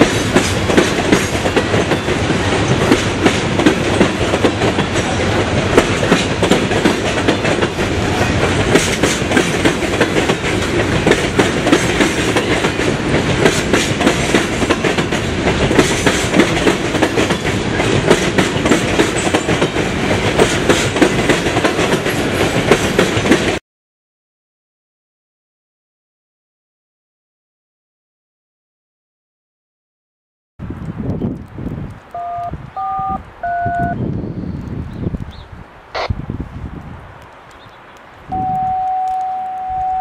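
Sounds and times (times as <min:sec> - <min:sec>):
freight train rolling past: 0:00.0 - 0:23.6
steel wheels clacking over rail joints: 0:00.0 - 0:23.6.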